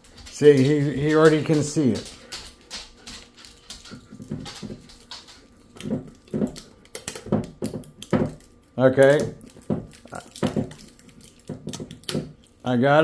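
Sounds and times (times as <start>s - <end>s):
plastic seal crinkling and clicking: 4.6s - 12.6s.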